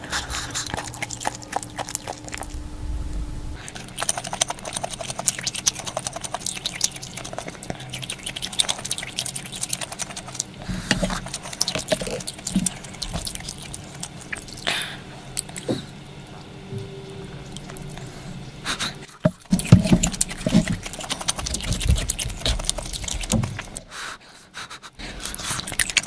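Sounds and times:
wet liquid sounds: 0:03.6 - 0:16.6, 0:17.2 - 0:23.9.

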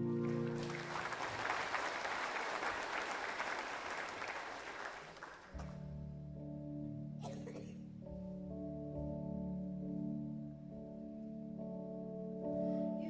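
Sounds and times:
congregation applauding: 0:00.0 - 0:05.8
sustained low chord: 0:05.6 - 0:13.0.

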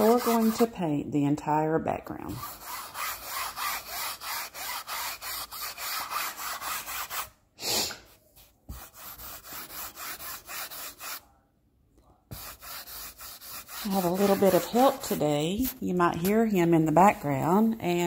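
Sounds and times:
foam brush scrubbing canvas: 0:00.0 - 0:00.7, 0:02.3 - 0:07.3, 0:08.4 - 0:11.3, 0:12.3 - 0:16.4.

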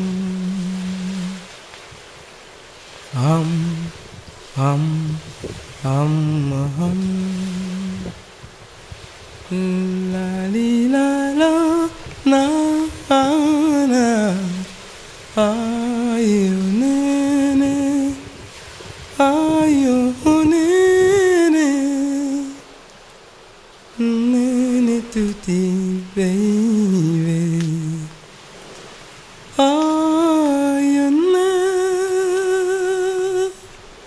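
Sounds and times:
person humming: 0:00.0 - 0:01.5, 0:03.2 - 0:08.2, 0:09.4 - 0:14.8, 0:15.4 - 0:18.4, 0:19.2 - 0:22.6, 0:24.0 - 0:28.2, 0:29.6 - 0:33.8.

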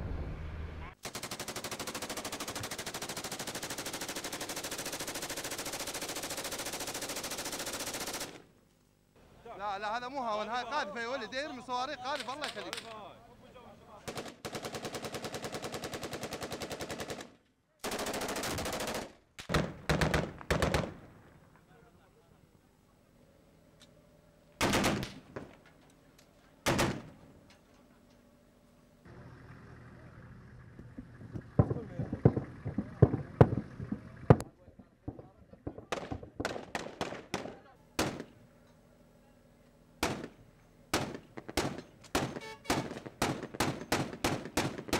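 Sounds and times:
machine-gun fire bursts: 0:01.0 - 0:08.5, 0:14.1 - 0:21.0, 0:24.6 - 0:25.5, 0:26.6 - 0:27.2, 0:35.7 - 0:38.4, 0:40.0 - 0:44.9
gunshots: 0:14.1 - 0:21.1, 0:24.6 - 0:25.6, 0:26.6 - 0:27.2, 0:35.1 - 0:38.4, 0:40.0 - 0:44.9.

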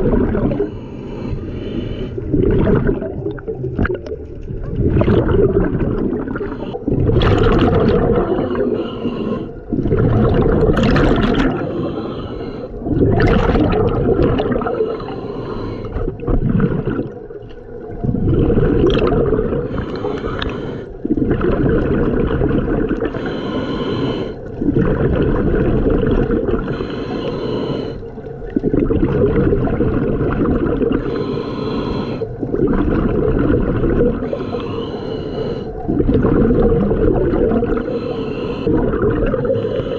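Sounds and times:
bubbles gurgling on exhale: 0:00.0 - 0:00.9, 0:02.2 - 0:23.5, 0:24.2 - 0:26.9, 0:27.8 - 0:34.7, 0:35.5 - 0:39.9
regulator inhale hiss: 0:00.6 - 0:02.3, 0:08.4 - 0:09.7, 0:11.6 - 0:12.8, 0:14.7 - 0:16.0, 0:19.7 - 0:21.0, 0:23.2 - 0:24.6, 0:26.6 - 0:28.2, 0:31.0 - 0:32.4, 0:34.2 - 0:35.9, 0:37.8 - 0:38.7, 0:39.4 - 0:39.9.

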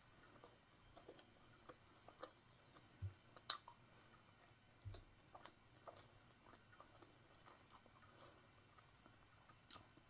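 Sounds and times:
chewing mouth clicks and smacks: 0:00.0 - 0:08.0, 0:08.8 - 0:10.0.

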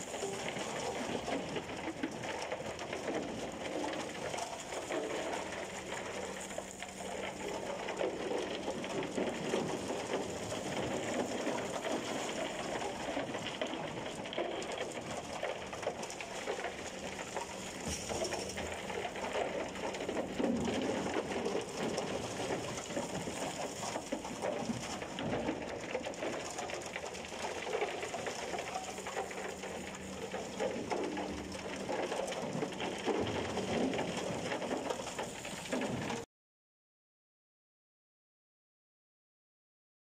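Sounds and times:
concrete chunks clattering down chute: 0:00.0 - 0:36.3.

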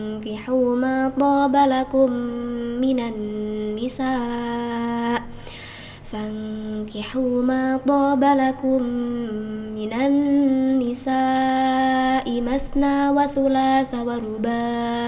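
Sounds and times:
woman chanting melodically: 0:00.0 - 0:05.3, 0:06.0 - 0:15.0
woman breathing in: 0:05.3 - 0:06.1.

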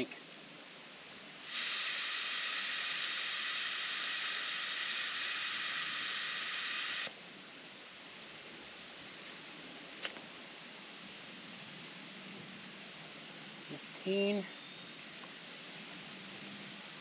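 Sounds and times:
air hissing from tire valve: 0:00.0 - 0:07.8.

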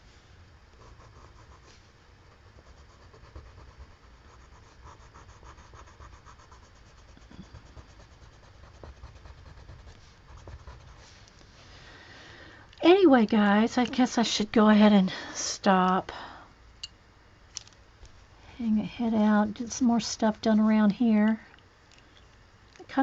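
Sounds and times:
pencil scratching on paper: 0:00.8 - 0:11.2.

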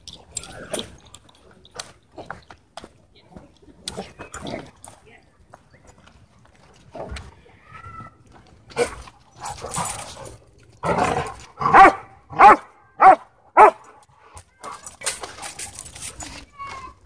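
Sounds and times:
dog barking sharply: 0:11.6 - 0:13.8.

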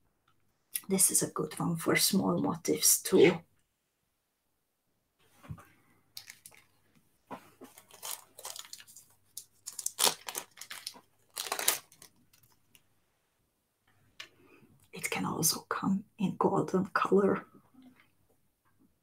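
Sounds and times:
packaging rustling and crinkling: 0:06.2 - 0:06.8, 0:07.4 - 0:12.8.

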